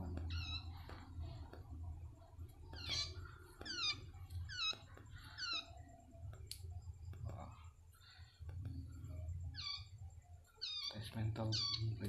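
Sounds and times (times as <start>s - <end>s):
faint taps: 0.1s - 1.8s.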